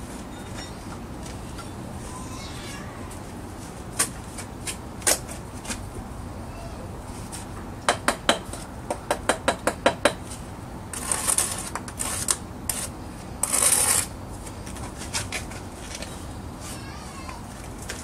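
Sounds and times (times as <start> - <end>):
trowel scraping mortar: 10.9 - 14.1.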